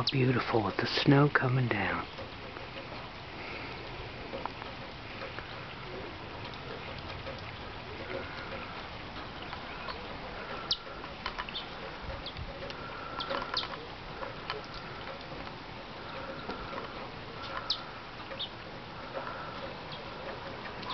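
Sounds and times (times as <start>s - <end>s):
steady hiss: 0.0s - 20.9s
lower repeated bird call: 9.4s - 13.9s, 16.1s - 20.9s
bird chip calls: 9.4s - 15.2s, 16.0s - 20.9s.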